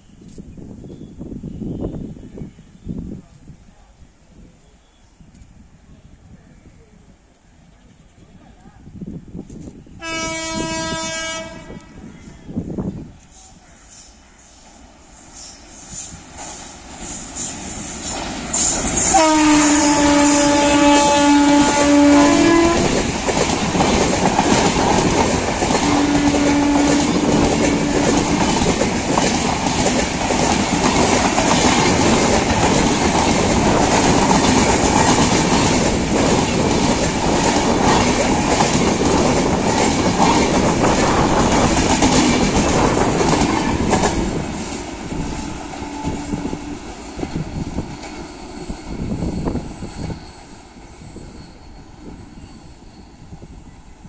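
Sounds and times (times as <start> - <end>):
train wheels clattering over rail joints: 20.5 - 50.8.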